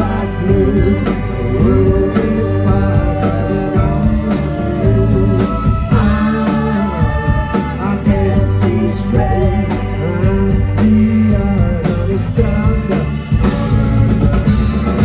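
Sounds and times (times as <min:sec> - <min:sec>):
lead vocal singing: 0:00.0 - 0:15.0
live rock band playing: 0:00.0 - 0:15.0.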